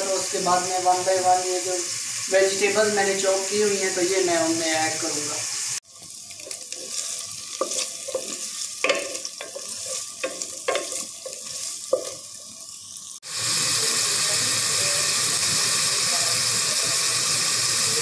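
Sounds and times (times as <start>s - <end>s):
chicken sizzling in a pot: 0.0s - 18.0s
vegetables sizzling loudly: 0.0s - 18.0s
wooden spatula scraping a pan: 6.4s - 12.3s.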